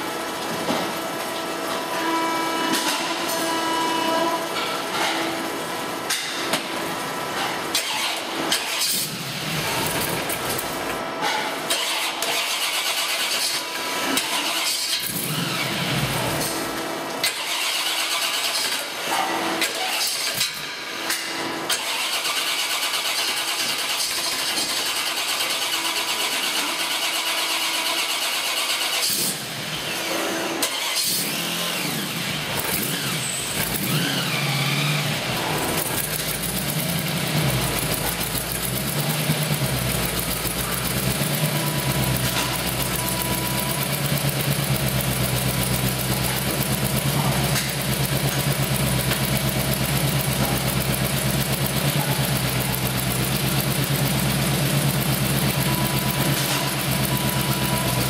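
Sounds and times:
supercharged engine revving: 14.2 - 16.2, 30.6 - 58.0.

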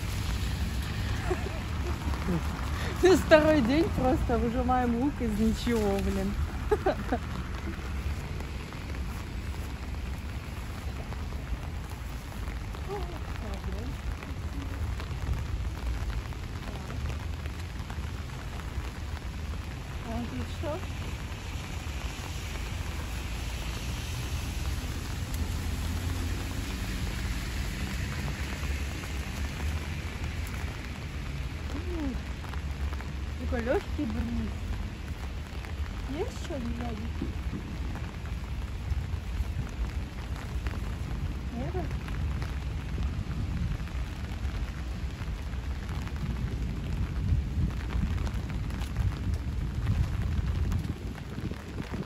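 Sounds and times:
rain pattering: 0.0 - 52.0
wind rumble on microphone: 0.0 - 52.0
wind buffeting microphone: 31.6 - 52.0.

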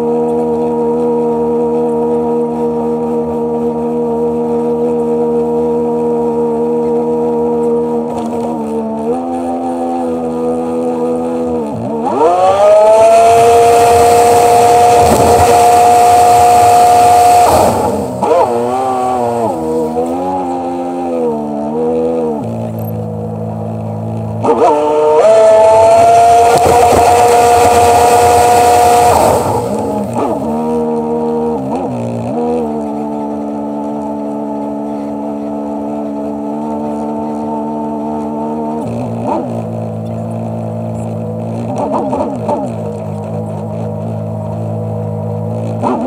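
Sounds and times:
watercraft engine: 4.8 - 46.0.

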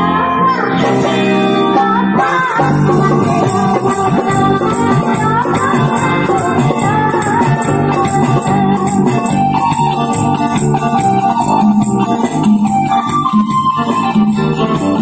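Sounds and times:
bass: 0.0 - 15.0
electronic keyboard melody: 0.0 - 15.0
rattling shaker percussion: 3.5 - 15.0.

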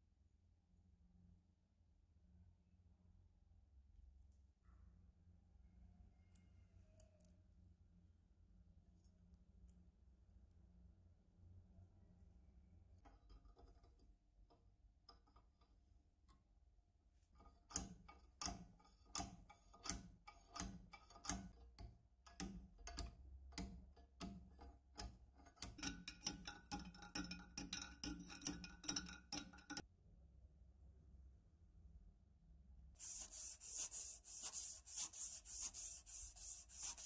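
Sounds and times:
metallic clicking rod in tube: 17.4 - 29.9.

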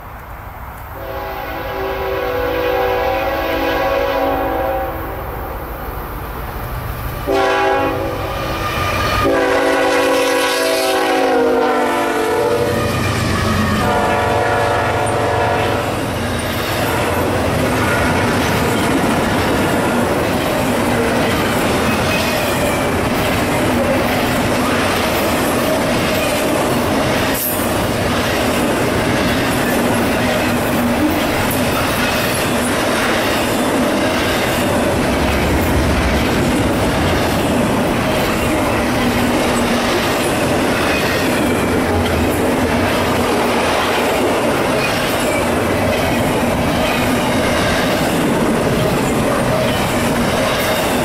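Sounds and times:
locomotive horn blasts: 1.0 - 5.6, 7.3 - 16.1
train wheels clacking on rails: 7.2 - 51.0.

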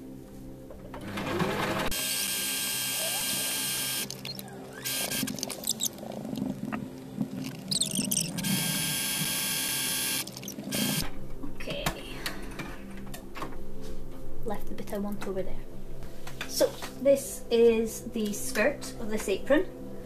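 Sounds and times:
sewing machine stitching: 1.0 - 4.1.

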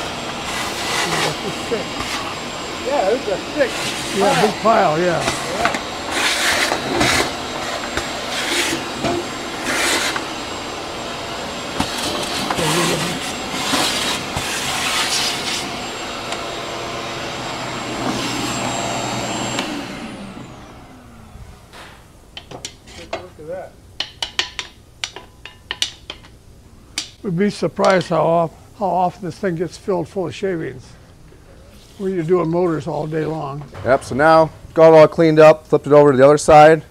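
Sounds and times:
shop vacuum whining: 0.0 - 23.6.

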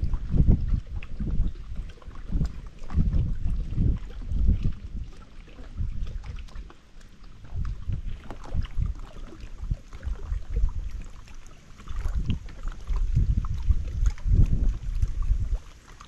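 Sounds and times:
wind buffeting microphone: 0.0 - 15.8
small waves lapping against hull: 0.0 - 16.0.

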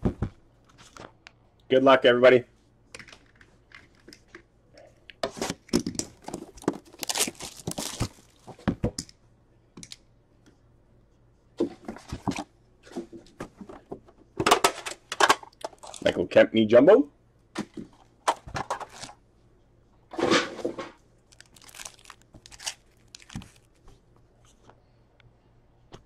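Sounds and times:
plastic wrap tearing and crinkling: 6.2 - 8.5, 21.3 - 23.8.

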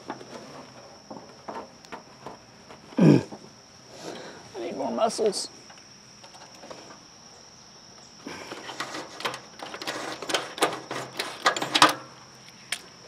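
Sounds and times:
high insect drone: 0.0 - 13.0
metal clanks and rattles: 8.4 - 12.2.

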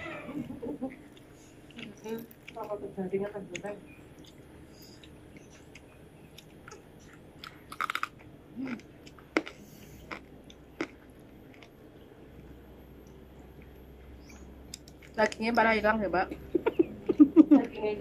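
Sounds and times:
crunchy chewing: 3.5 - 15.4.

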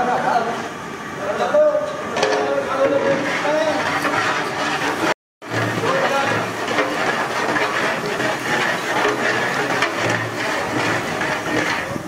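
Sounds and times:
metal paddle scraping a pot: 2.2 - 12.0.

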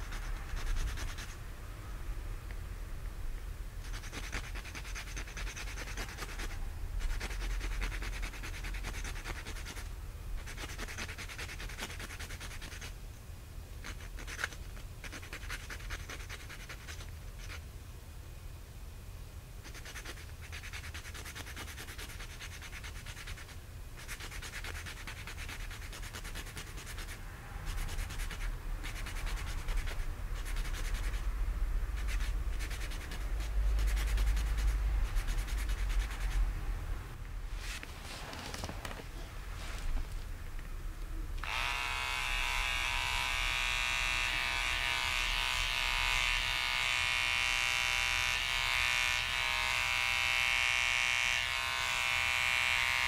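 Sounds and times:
nail file rasping on claws: 0.0 - 1.4, 3.8 - 13.0, 13.8 - 17.6, 19.6 - 31.3, 31.9 - 36.4.

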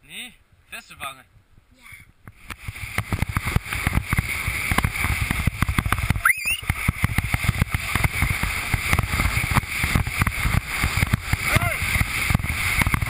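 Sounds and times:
wind buffeting microphone: 1.3 - 13.0
high warbling squeal: 6.2 - 6.8.

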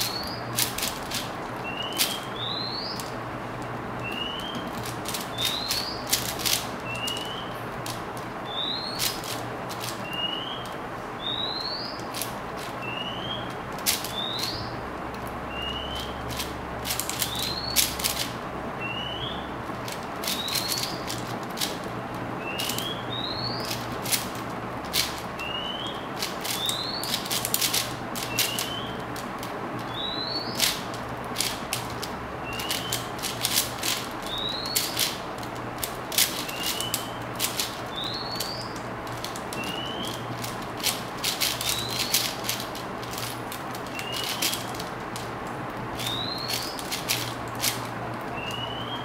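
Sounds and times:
bird chirping: 0.0 - 0.7, 1.6 - 3.2, 4.0 - 7.6, 8.4 - 12.2, 12.8 - 14.8, 15.5 - 16.3, 17.1 - 18.0, 18.8 - 19.6, 20.2 - 21.2, 22.4 - 23.8, 25.4 - 27.3, 28.2 - 29.1, 29.8 - 30.9, 32.4 - 33.4, 34.2 - 35.2, 36.2 - 40.4, 41.4 - 42.4, 43.8 - 44.8, 46.0 - 46.9, 48.3 - 49.0
plastic puzzle cube clicking: 0.0 - 2.3, 4.2 - 8.0, 9.0 - 10.8, 12.0 - 12.8, 13.4 - 14.5, 16.0 - 18.4, 19.9 - 21.9, 22.6 - 22.9, 23.6 - 25.3, 26.2 - 29.9, 30.5 - 45.3, 46.0 - 48.5.

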